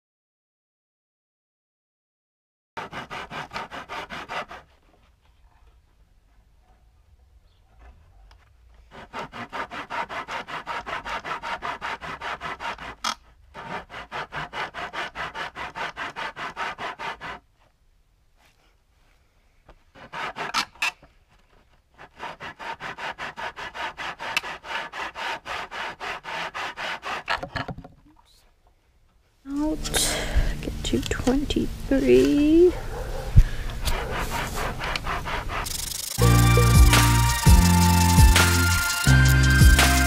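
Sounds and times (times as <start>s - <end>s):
rubbing strokes on wood: 2.8s - 5.2s, 8.8s - 17.4s, 19.9s - 20.8s, 21.5s - 27.5s, 33.8s - 40.0s.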